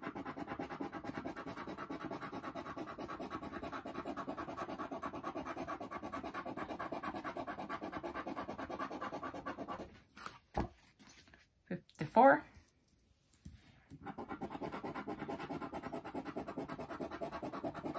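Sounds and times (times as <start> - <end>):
scratching lottery ticket: 0.0 - 9.8, 14.0 - 17.9.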